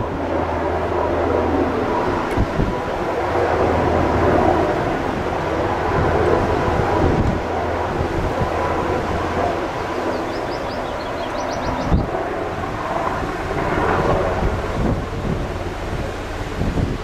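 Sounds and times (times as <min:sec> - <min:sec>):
helicopter rotor and engine drone: 0:00.0 - 0:17.0
wind buffeting microphone: 0:00.0 - 0:17.0.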